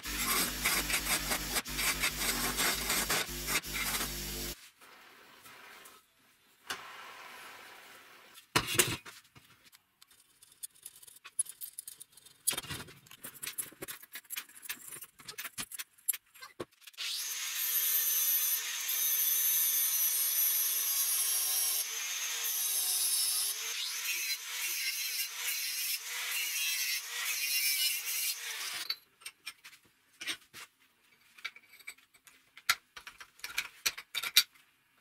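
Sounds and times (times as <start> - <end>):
angle grinder grinding metal: 0.0 - 4.6.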